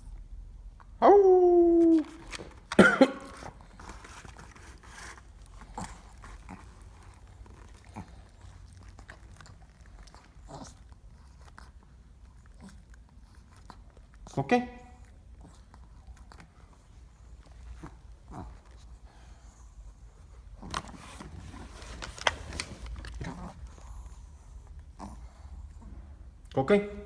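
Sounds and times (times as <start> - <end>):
dog chewing a treat: 3.6 - 14.4.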